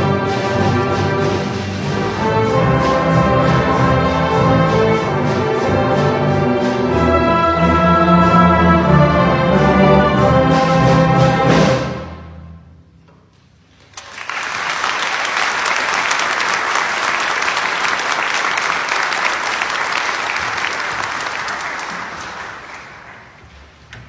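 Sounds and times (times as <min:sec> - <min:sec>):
audience applauding: 0:13.8 - 0:23.5.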